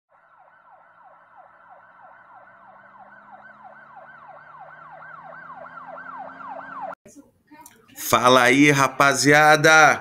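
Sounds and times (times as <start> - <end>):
electronic siren yelping: 0.1 - 7.0.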